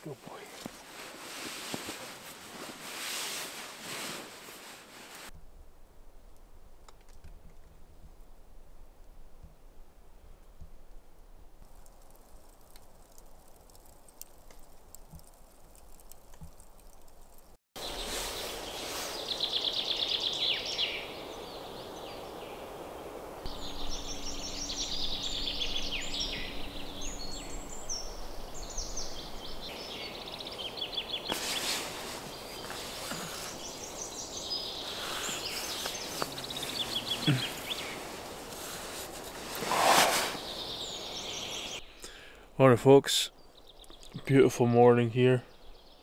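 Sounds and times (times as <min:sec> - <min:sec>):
outdoor background hiss: 0:00.0 - 0:46.0
loud rustle: 0:00.4 - 0:05.3, 0:17.8 - 0:19.6, 0:31.2 - 0:41.8
songbirds singing: 0:17.3 - 0:42.5, 0:43.3 - 0:46.0.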